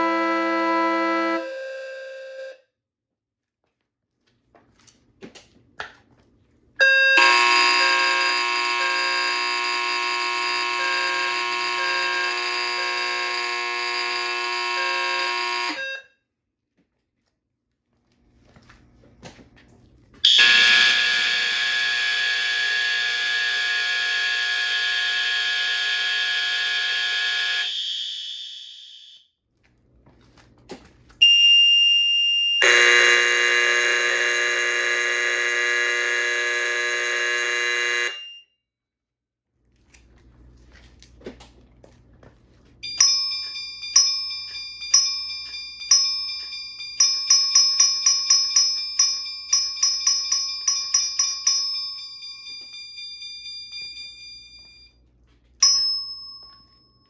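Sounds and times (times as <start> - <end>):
buzzing alarm horn: 0.0 - 2.6, 6.8 - 16.2, 20.2 - 29.2, 32.6 - 38.5
high steady alarm tone: 6.8 - 16.2, 20.2 - 29.2, 31.2 - 38.5, 42.8 - 55.0
alarm bell ringing strokes: 42.8 - 55.0.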